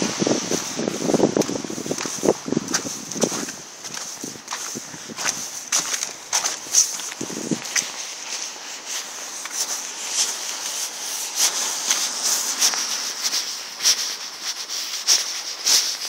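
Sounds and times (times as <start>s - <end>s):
constant hiss: 0.0s - 16.0s
footsteps on wet slush: 0.0s - 16.0s.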